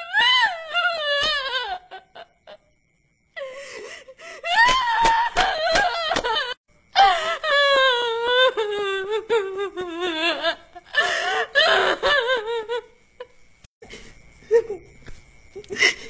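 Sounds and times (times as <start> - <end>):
woman wailing hysterically: 0.0 - 2.6, 4.4 - 12.9.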